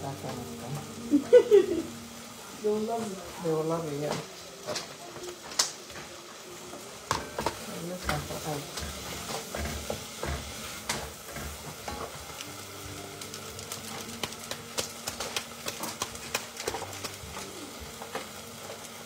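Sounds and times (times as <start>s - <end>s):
stirring in a pot: 2.9s - 12.6s
sharp crackles: 4.0s - 6.2s, 12.2s - 19.0s
plastic sachet crinkling: 13.2s - 18.1s.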